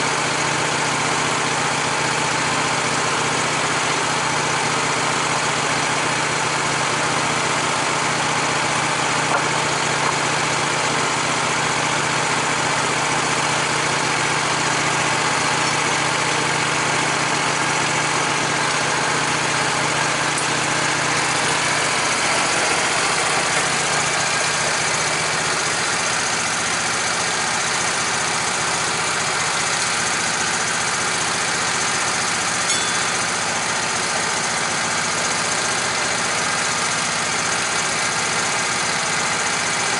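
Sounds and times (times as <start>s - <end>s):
band sawmill sawing log: 8.0s - 12.5s, 13.1s - 28.2s.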